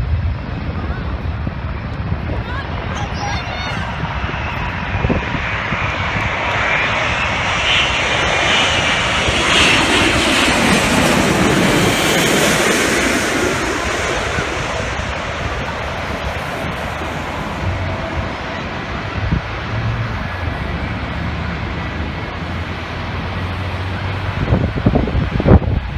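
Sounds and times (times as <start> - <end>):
jet engines roaring overhead: 0.0 - 25.9.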